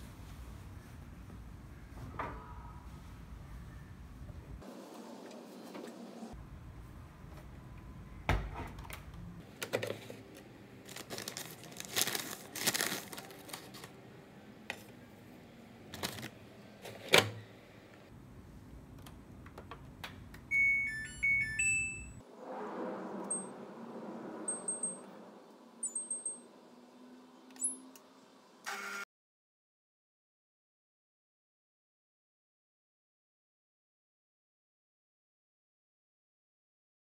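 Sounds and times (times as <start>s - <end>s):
detergent drawer opening and shutting: 8.3s - 11.3s, 15.9s - 17.5s
electronic beep tune: 20.5s - 22.2s, 25.8s - 26.4s.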